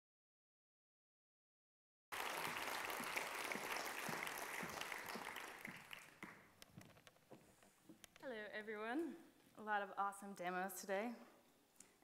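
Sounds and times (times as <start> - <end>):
audience applauding: 2.1 - 6.6.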